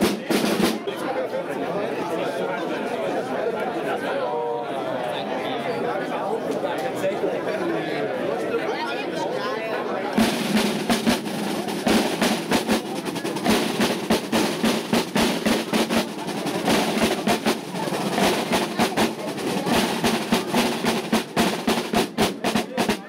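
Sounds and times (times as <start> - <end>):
snare drums playing marching cadence: 0.0 - 1.0, 10.2 - 23.0.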